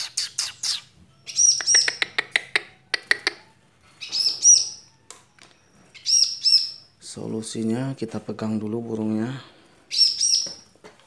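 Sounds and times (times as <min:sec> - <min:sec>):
bird sharp chip notes: 0:00.0 - 0:05.1
bird ringing call notes: 0:01.1 - 0:02.1, 0:03.2 - 0:07.0.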